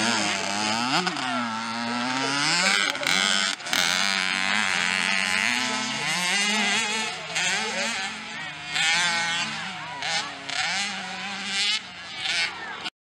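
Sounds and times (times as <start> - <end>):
motocross bike engine revving: 0.0 - 12.9.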